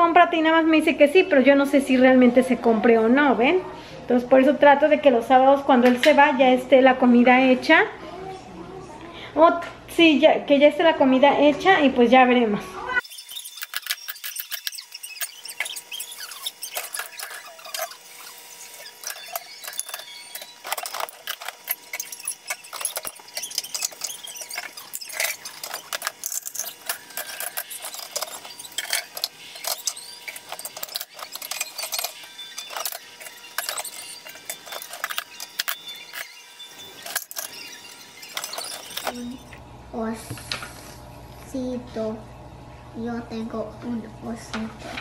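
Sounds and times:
dishes clattering: 13.4 - 39.3.

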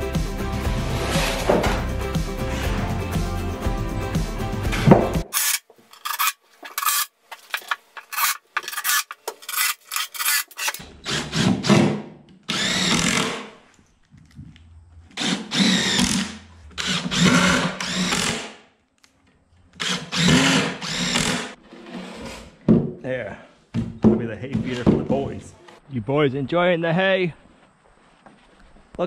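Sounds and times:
short knocks and scrapes: 1.0 - 1.9
cordless drill driving screws: 12.5 - 13.5, 15.1 - 18.6, 19.8 - 21.6.

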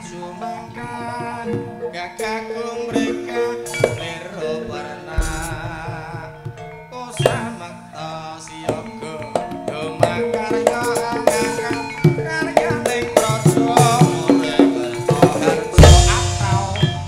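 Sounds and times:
gamelan metallophone notes: 0.0 - 17.0
hand drum strokes: 5.1 - 7.5
deep low drum stroke: 5.2 - 6.7.

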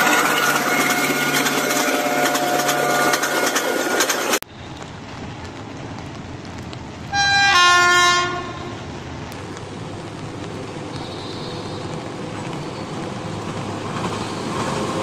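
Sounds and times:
train horn: 0.0 - 3.7, 7.1 - 8.8
loud dense noise with clicks: 3.5 - 7.2, 9.2 - 14.2.

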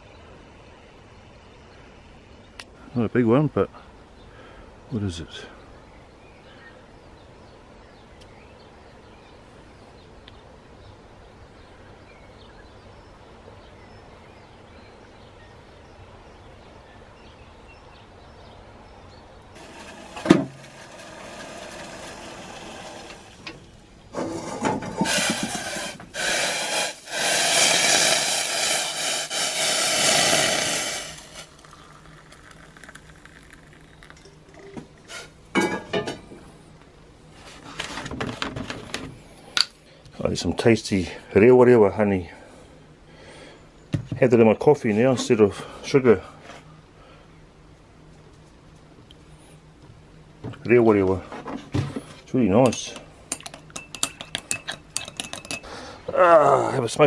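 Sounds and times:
faint outdoor ambience: 0.0 - 57.0
gas burner hissing: 19.6 - 33.0.

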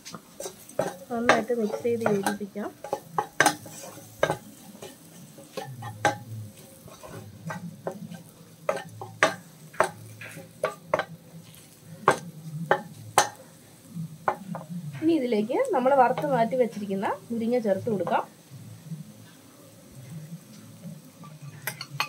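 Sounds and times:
spatula scraping metal pot: 0.0 - 15.1, 20.5 - 22.0
masala sizzling: 0.0 - 22.0.

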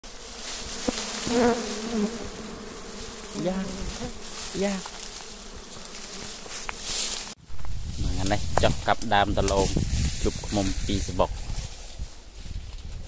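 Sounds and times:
bee flying close by: 0.0 - 9.1
bees buzzing as a swarm: 0.0 - 9.5.

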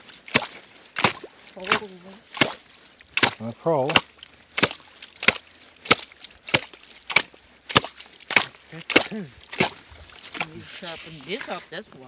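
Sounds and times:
ice chisel striking ice: 3.2 - 8.5.

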